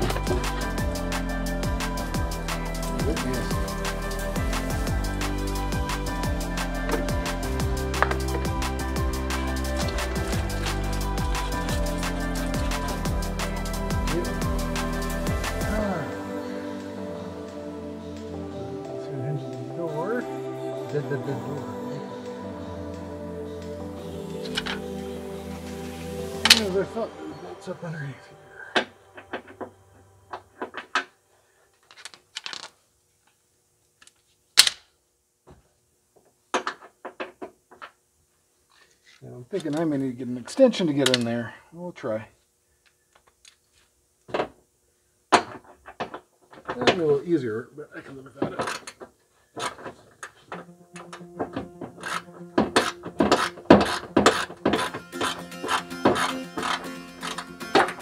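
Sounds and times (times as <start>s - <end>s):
music with steady beat: 0.0s - 29.6s, 50.5s - 58.0s.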